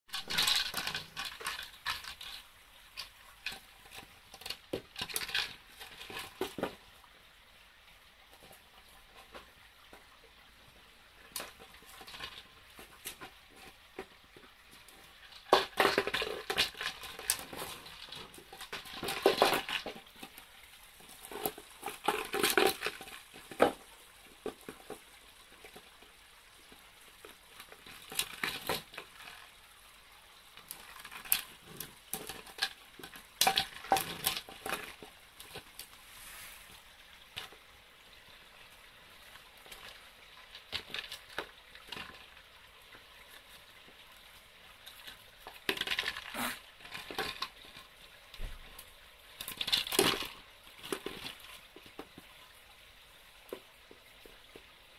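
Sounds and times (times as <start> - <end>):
dog scraping plastic container: 45.6 - 47.6.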